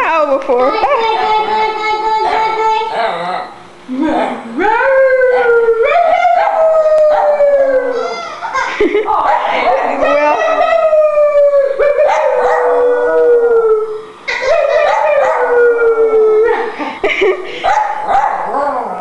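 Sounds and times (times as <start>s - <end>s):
dog howling: 4.6s - 8.5s, 9.2s - 16.7s.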